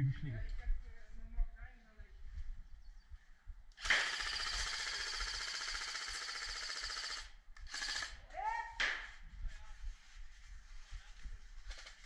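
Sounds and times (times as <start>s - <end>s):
airsoft rifle firing bursts: 3.8s - 8.2s.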